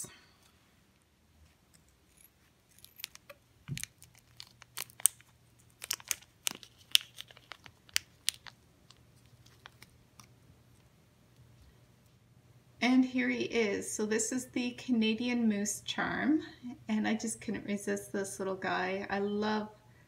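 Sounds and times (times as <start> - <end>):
plastic crinkles and clicks: 2.7 - 11.5.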